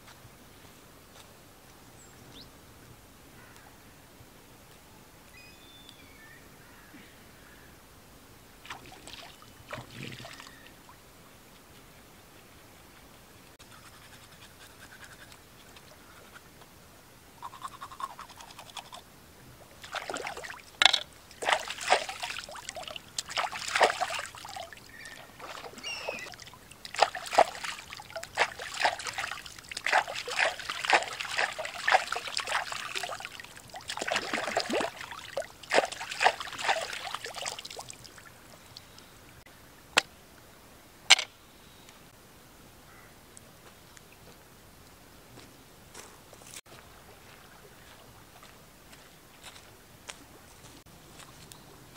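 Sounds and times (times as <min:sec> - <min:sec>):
hands splashing in water: 0:19.8 - 0:38.2.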